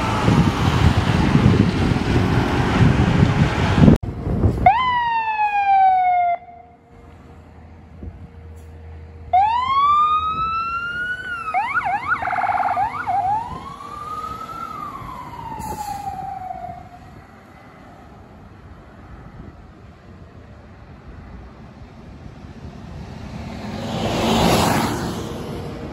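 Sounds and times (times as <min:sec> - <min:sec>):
fire engine siren wailing: 0:04.5 - 0:06.9, 0:09.2 - 0:17.6
siren yelp: 0:04.6 - 0:06.8, 0:09.3 - 0:17.2.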